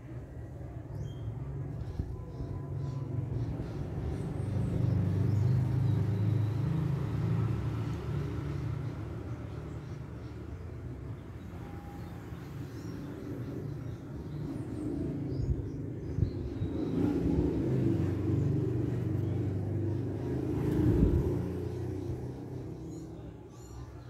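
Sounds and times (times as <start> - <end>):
vehicle engine passing: 2.9 - 10.2, 12.4 - 23.4.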